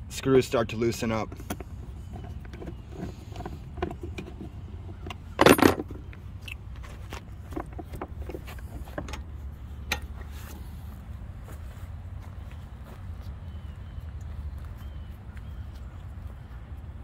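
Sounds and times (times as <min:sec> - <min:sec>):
plastic parts clicking and rattling: 0:01.4 - 0:06.6.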